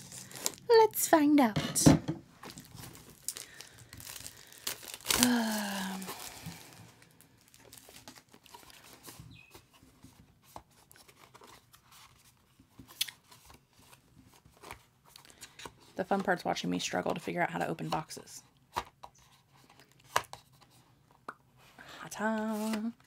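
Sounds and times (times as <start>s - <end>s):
cardboard crinkling and scraping: 2.3s - 16.4s
person humming: 5.1s - 6.8s.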